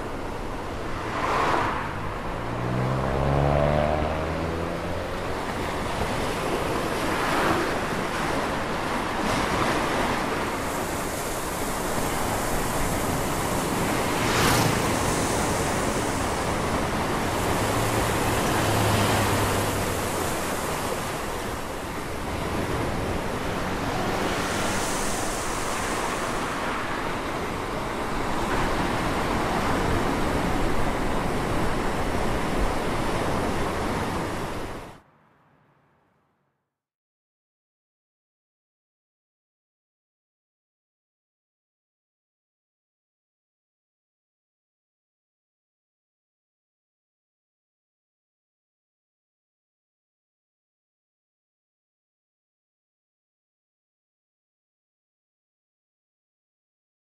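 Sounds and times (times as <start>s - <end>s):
steady rushing noise: 0.0s - 35.7s.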